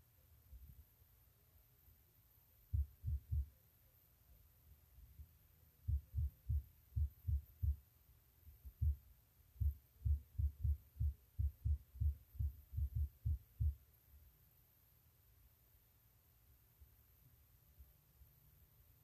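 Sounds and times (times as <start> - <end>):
dull low thumps: 2.7 - 3.5, 5.9 - 7.8, 8.7 - 9.0, 9.6 - 13.8.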